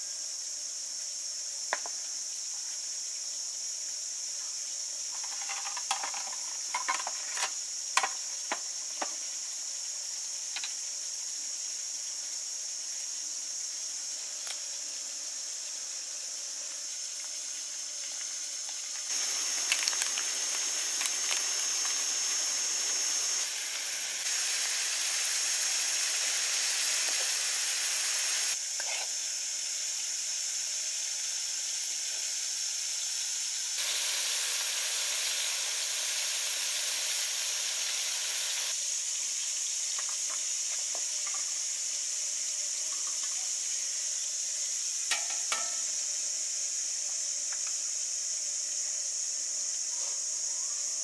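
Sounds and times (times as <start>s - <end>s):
food sizzling in a wok: 0.0s - 51.0s
plates and utensils clinking: 5.2s - 8.1s.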